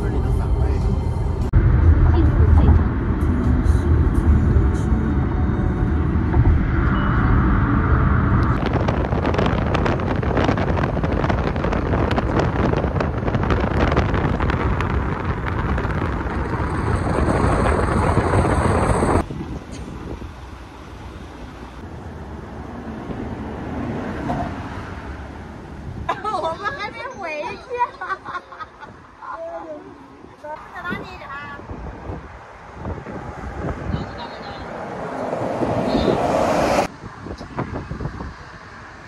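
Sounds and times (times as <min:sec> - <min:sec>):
moving vehicle rumble: 0:00.0 - 0:39.0
wind buffeting microphone: 0:07.5 - 0:20.4, 0:30.6 - 0:39.0.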